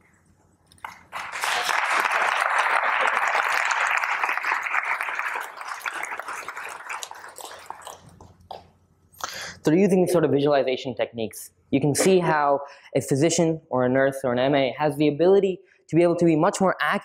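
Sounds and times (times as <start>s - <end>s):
audience applauding: 0.8s - 8.6s.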